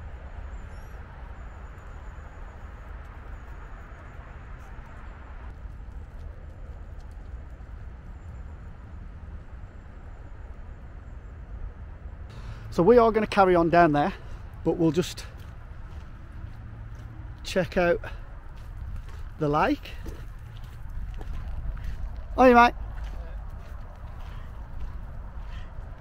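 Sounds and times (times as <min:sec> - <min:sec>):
low rumble: 0:18.1 - 0:26.0.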